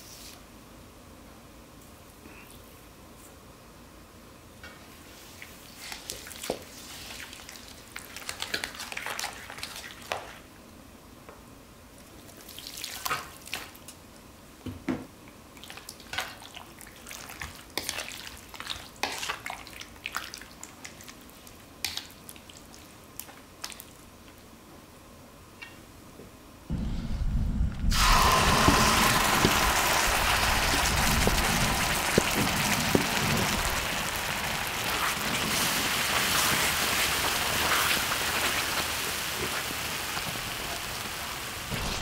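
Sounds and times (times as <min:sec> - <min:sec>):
wet squelches of stirring marinade: 0:05.0 - 0:10.5, 0:12.0 - 0:14.0, 0:15.3 - 0:24.4.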